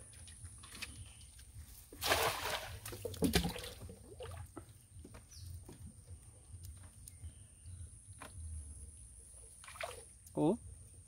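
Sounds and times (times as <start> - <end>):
cast net splashing into water: 1.9 - 4.5, 9.6 - 10.1.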